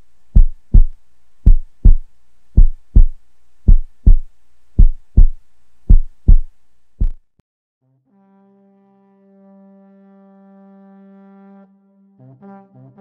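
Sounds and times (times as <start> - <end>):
heartbeat thumps: 0.4 - 7.2.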